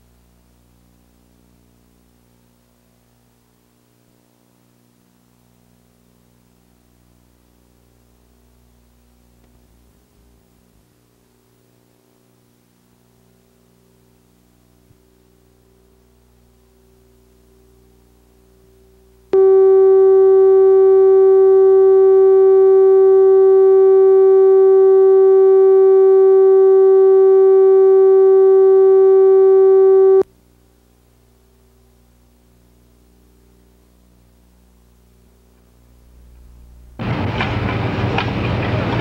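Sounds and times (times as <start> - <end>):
faint low hum: 0.0 - 37.1
electronic reference tone: 17.7 - 30.3.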